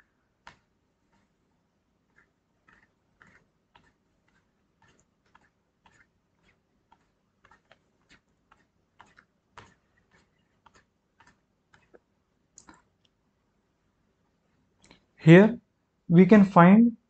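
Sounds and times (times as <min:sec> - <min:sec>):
computer mouse clicks: 0:02.1 - 0:13.2.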